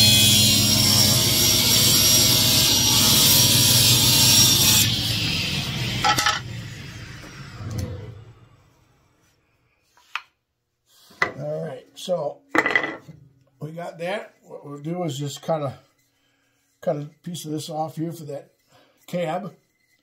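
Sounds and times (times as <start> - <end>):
table saw cutting wood: 0.0 - 8.8
saw spinning down: 0.6 - 9.2.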